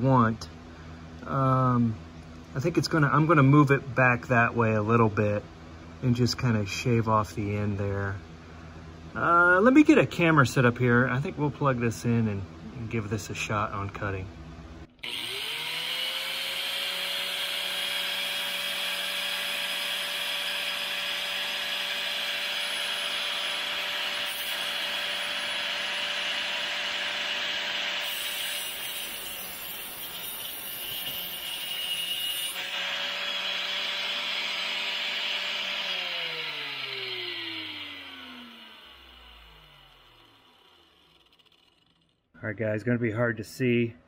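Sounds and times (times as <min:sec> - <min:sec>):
angle grinder running: 0:15.0 - 0:42.3
grinder cutting steel: 0:15.0 - 0:42.3.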